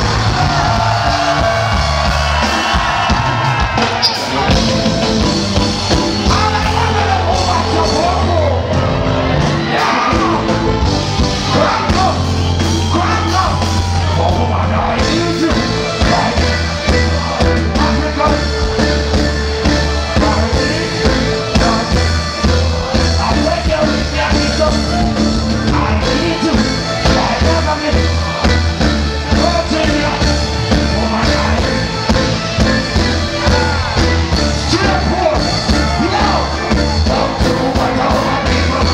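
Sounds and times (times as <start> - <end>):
crowd shouting: 0.0 - 38.9
heavy bass line: 0.0 - 38.9
reggae band playing: 0.0 - 38.9
man singing and chanting: 23.1 - 24.9, 34.6 - 38.9.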